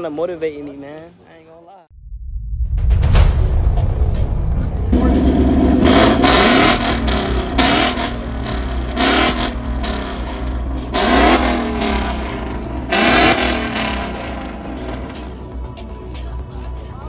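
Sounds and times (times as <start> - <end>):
car engine revving: 4.6 - 15.4.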